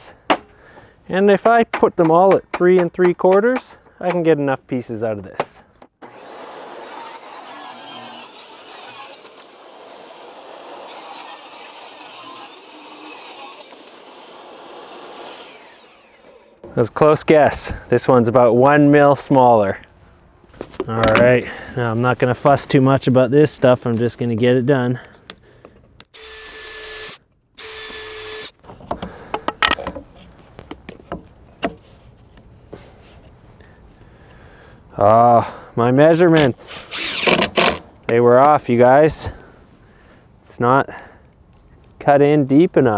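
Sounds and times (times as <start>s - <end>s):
table saw running: 6.0s - 16.6s
knocks and clicks of wood: 28.7s - 31.8s
cordless drill whirring: 36.9s - 37.6s.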